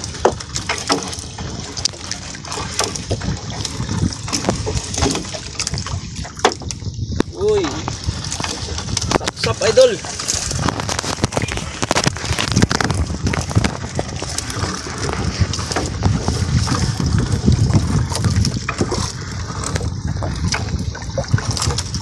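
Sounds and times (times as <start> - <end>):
fishing net hauled by hand: 0.0 - 22.0
clicks and rustling: 6.4 - 16.9.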